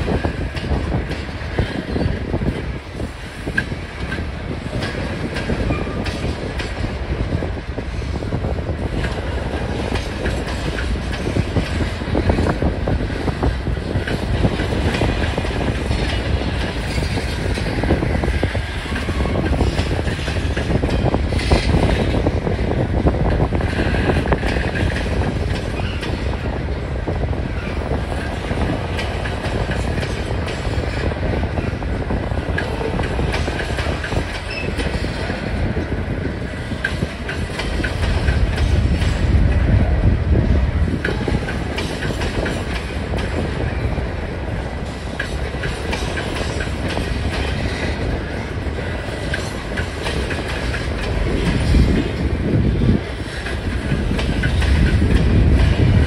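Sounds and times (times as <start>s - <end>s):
freight train rumbling past: 0.0s - 56.0s
wheels clicking over rail joints: 44.4s - 52.3s.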